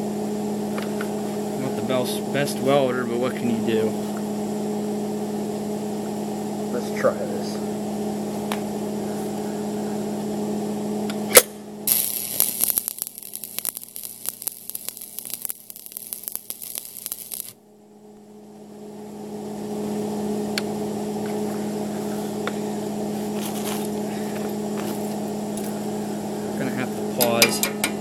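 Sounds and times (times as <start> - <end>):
steady hum: 0.0 - 28.0
welding arc crackling: 11.3 - 17.6
welding arc strike crack: 11.3 - 17.6.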